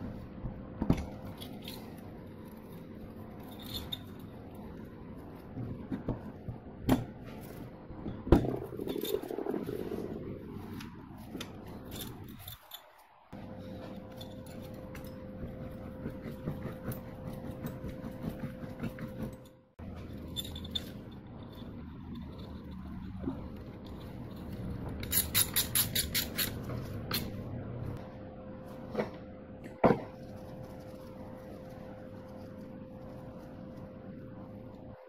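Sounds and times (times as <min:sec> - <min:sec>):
metal parts clinking: 0:01.2 - 0:04.6, 0:11.6 - 0:13.2, 0:19.4 - 0:22.7
metal scraping: 0:07.2 - 0:28.0.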